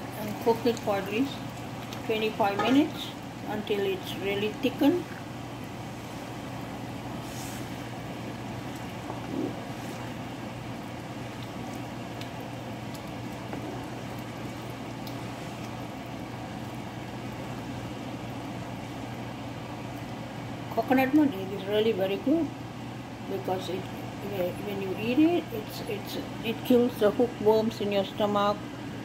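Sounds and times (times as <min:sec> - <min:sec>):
sauce simmering in a pan: 0:00.0 - 0:20.7
steady low hum: 0:00.0 - 0:29.0.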